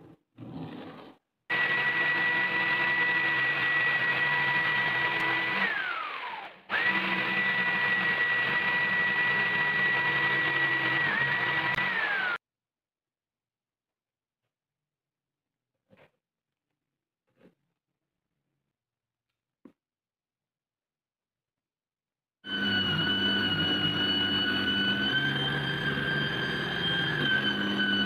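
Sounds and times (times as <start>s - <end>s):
jigsaw cutting plywood: 0.4s - 12.4s, 22.5s - 28.0s.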